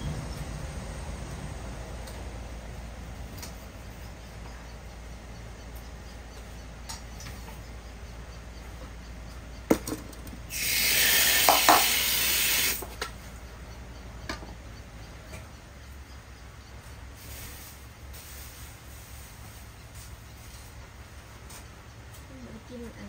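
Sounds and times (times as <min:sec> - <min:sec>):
water gushing from a tap: 0:10.5 - 0:12.8.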